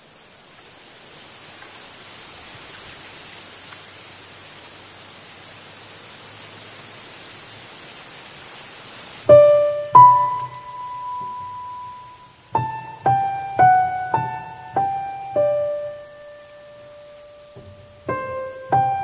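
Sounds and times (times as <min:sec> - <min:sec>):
wind rustling bamboo leaves: 0:00.0 - 0:19.0
piano note: 0:09.3 - 0:19.0.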